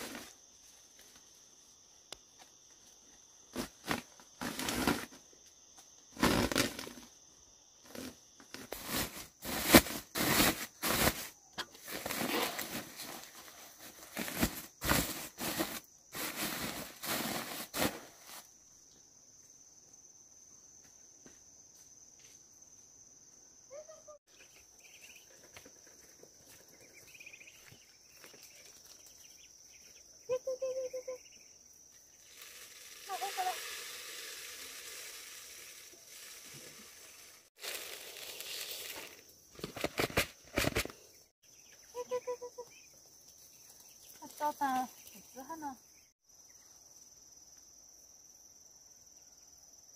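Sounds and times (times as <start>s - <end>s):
insect trilling: 26.9s - 39.5s.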